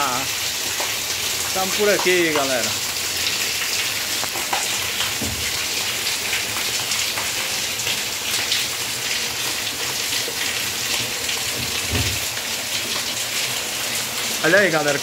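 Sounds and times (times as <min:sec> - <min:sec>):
steady rain on leaves: 0:00.0 - 0:15.0
single raindrops ticking: 0:00.7 - 0:03.0, 0:03.6 - 0:05.6.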